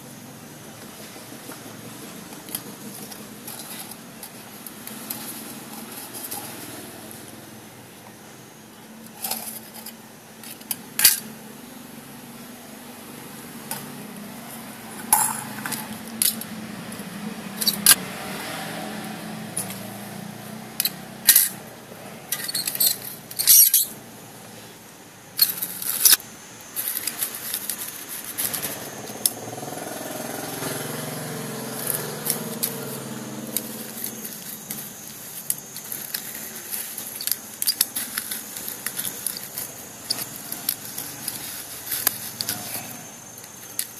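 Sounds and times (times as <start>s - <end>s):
metal scraping: 1.8s - 7.3s, 30.4s - 43.9s.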